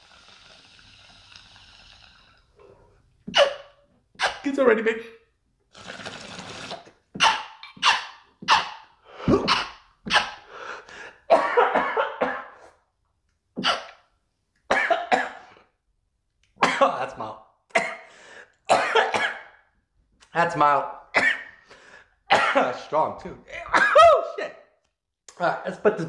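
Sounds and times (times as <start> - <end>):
man coughing hard: 11.3 - 12.7, 14.7 - 15.5, 16.6 - 18.1, 18.7 - 19.6, 22.3 - 22.9, 23.5 - 24.6.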